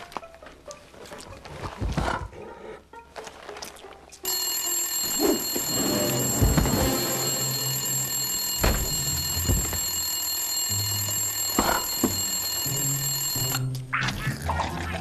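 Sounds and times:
telephone bell ringing: 4.2 - 13.7.

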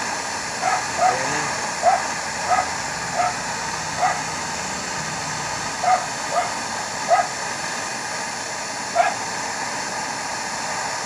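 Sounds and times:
torch flame hissing: 0.0 - 11.0
dog barking: 0.6 - 3.4, 4.0 - 4.3, 5.8 - 7.3, 9.0 - 9.2.

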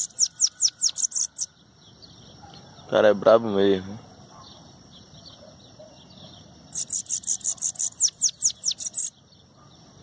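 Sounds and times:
bird singing rapid high notes: 0.0 - 2.2, 6.0 - 9.3.

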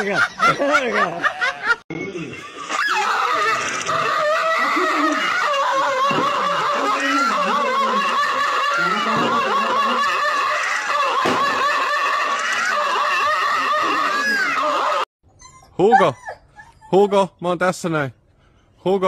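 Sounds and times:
people laughing and chattering: 0.0 - 15.0.

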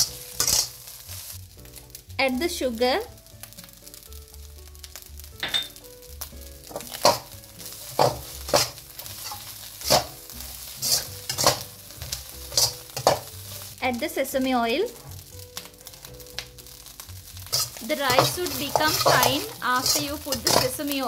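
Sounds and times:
metal ladle scraping wok: 0.0 - 0.9, 7.9 - 13.3, 17.4 - 21.0
rice sizzling in a wok: 0.0 - 21.0.

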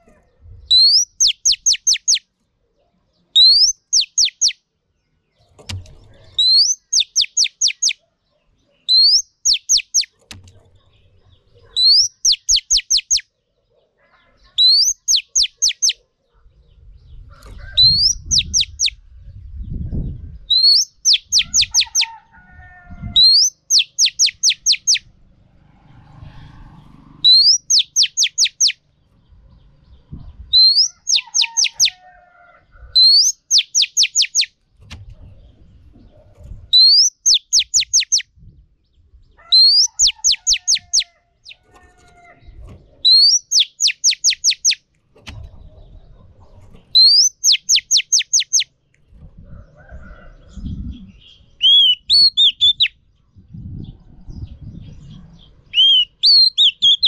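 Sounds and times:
bird calling sharp high notes: 51.6 - 52.9, 55.8 - 57.0.

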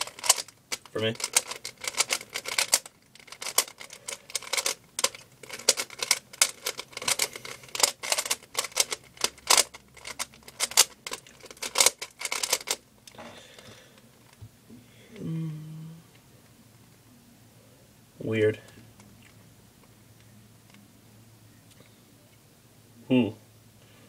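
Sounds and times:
plastic puzzle cube clicking: 0.0 - 12.8.

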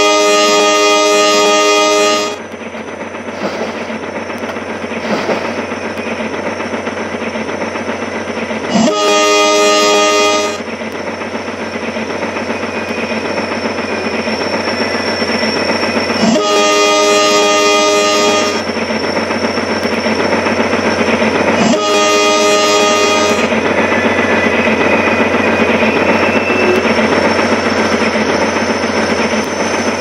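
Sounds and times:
train horn blasts: 0.0 - 2.4, 8.7 - 10.6, 16.2 - 18.7, 21.6 - 23.6
train rattling: 0.0 - 30.0.

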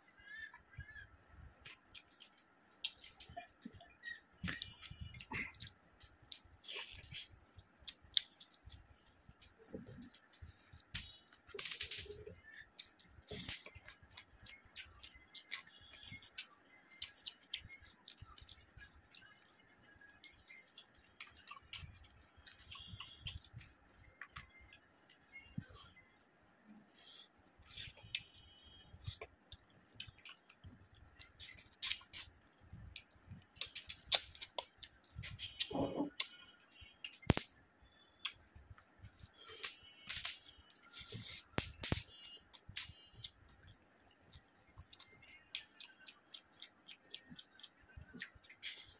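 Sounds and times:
person chewing food: 0.2 - 48.9
wet mouth clicks: 30.0 - 36.4.

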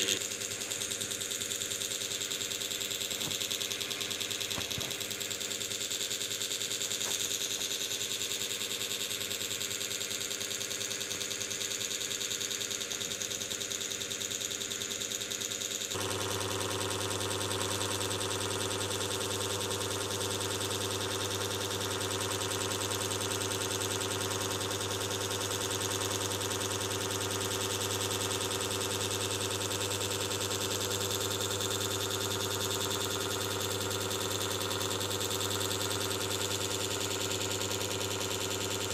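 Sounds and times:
electrical hum with hiss: 0.0 - 0.2.

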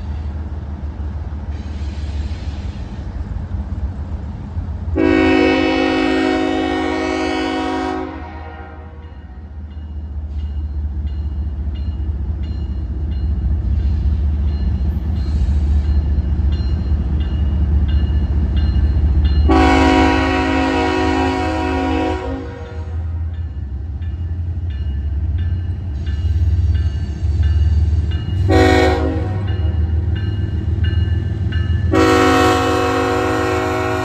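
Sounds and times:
locomotive engine rumble: 0.0 - 34.0
locomotive horn blasts: 5.0 - 9.2, 19.4 - 23.2, 28.4 - 29.9, 31.9 - 34.0.

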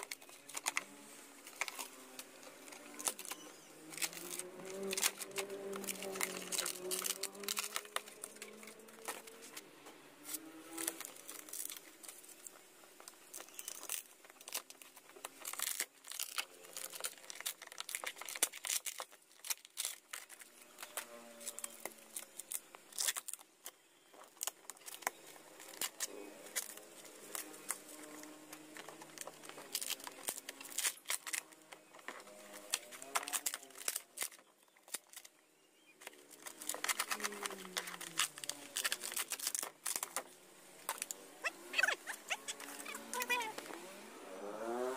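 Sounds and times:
plywood cracking and snapping: 2.7 - 9.6, 10.7 - 35.4, 36.0 - 43.7.

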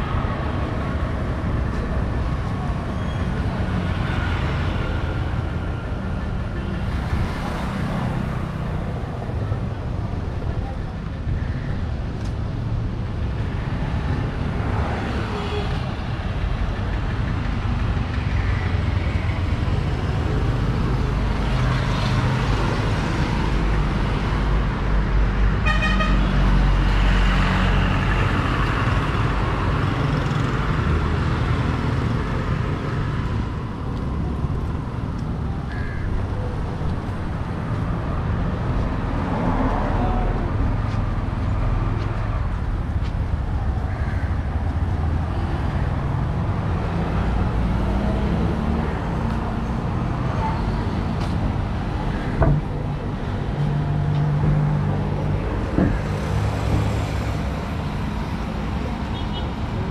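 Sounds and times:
traffic rumble: 0.0 - 59.9.

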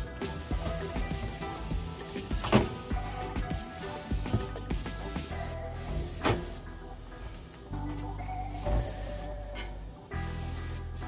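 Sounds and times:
spray bottle hissing: 0.0 - 6.6, 8.5 - 9.4, 10.2 - 11.0
background music: 0.0 - 11.0.

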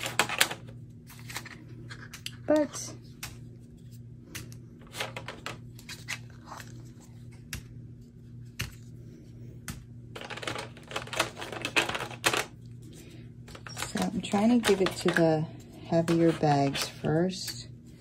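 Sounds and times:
plastic bags clicking and crinkling: 10.1 - 12.6, 13.5 - 17.0.

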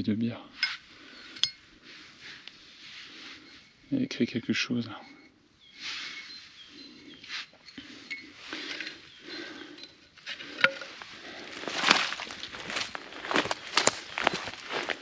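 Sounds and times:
rustling of dry leaves: 5.7 - 15.0.

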